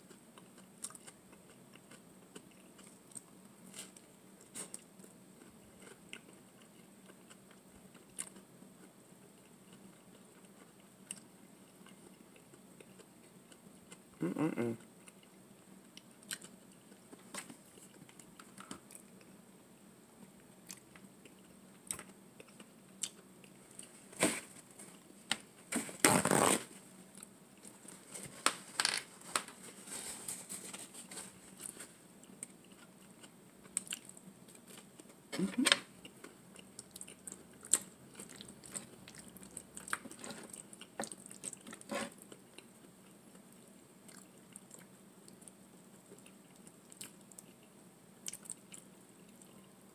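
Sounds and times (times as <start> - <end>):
person chewing: 0.0 - 19.4, 20.6 - 25.2, 29.9 - 49.8.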